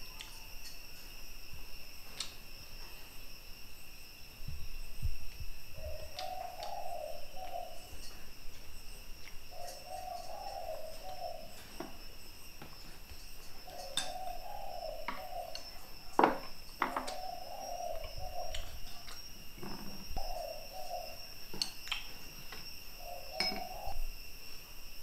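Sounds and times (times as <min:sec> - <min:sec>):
dove cooing: 0:05.7 - 0:08.6, 0:09.4 - 0:12.1, 0:13.5 - 0:21.5, 0:22.2 - 0:24.1
dishes clinking and knocking: 0:16.2 - 0:17.2, 0:23.4 - 0:23.8.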